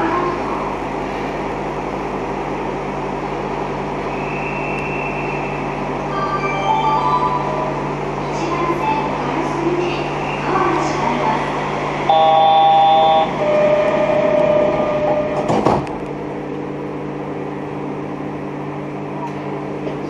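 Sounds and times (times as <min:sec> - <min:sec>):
train electrical hum: 0:00.0 - 0:20.0
steady electronic tone: 0:12.1 - 0:15.5
train doors shutting thud: 0:12.5 - 0:16.1.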